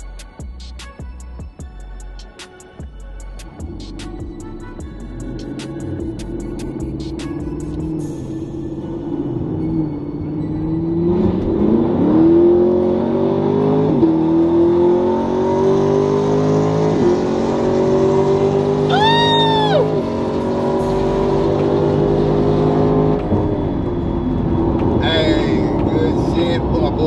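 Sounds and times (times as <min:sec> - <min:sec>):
car engine at full throttle: 0:03.4 - 0:27.0.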